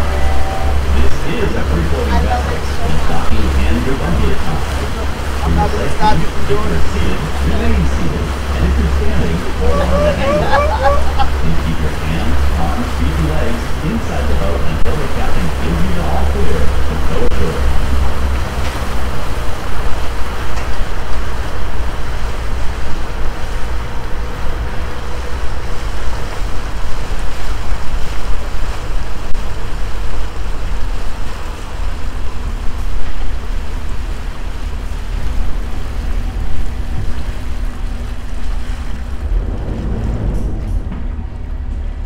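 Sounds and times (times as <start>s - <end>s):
boat engine running: 0.0s - 42.0s
water rushing past hull: 0.0s - 42.0s
wind buffeting microphone: 14.7s - 42.0s.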